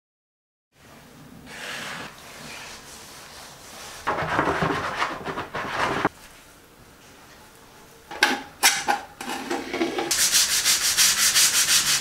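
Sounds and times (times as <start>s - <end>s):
sponge scrubbing plastic: 10.1s - 12.0s.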